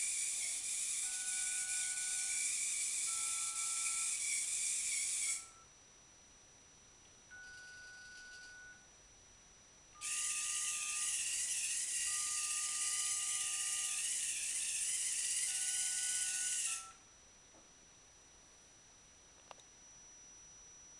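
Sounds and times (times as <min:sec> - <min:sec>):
robot motors whirring: 0:00.0 - 0:05.5, 0:10.0 - 0:16.9
telephone keypad tones: 0:07.3 - 0:08.8.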